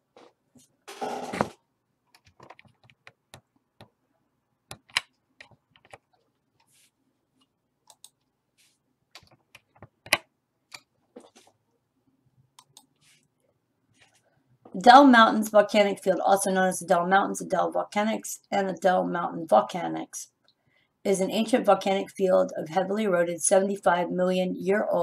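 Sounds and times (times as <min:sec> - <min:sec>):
mouse and keyboard clicks: 0:04.7 - 0:06.2, 0:07.9 - 0:08.2.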